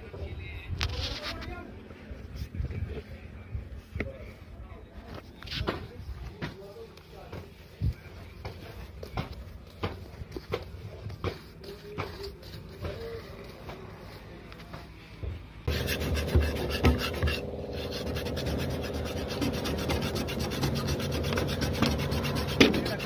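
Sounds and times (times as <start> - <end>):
brush strokes on a wall: 5.2 - 23.0
sandpaper scrubbing metal panel: 8.4 - 14.3, 15.7 - 23.0
steady hum: 15.1 - 23.0.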